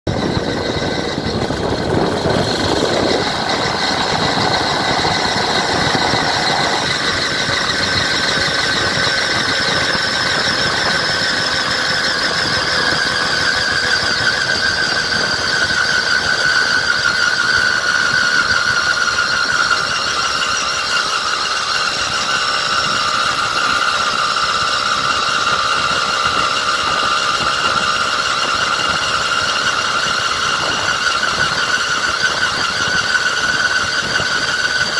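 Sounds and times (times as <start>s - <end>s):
bike tyre whine: 0.0s - 34.9s
wind and road noise: 0.0s - 34.9s.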